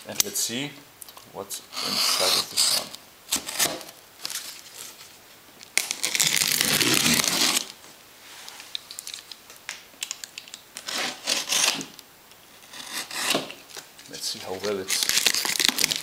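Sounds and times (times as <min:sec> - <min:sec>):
packing tape ripping: 0:01.8 - 0:05.0, 0:05.6 - 0:07.8, 0:10.0 - 0:12.0, 0:12.6 - 0:13.9, 0:14.5 - 0:16.0
plastic wrap crinkling: 0:01.9 - 0:12.0, 0:13.5 - 0:16.0.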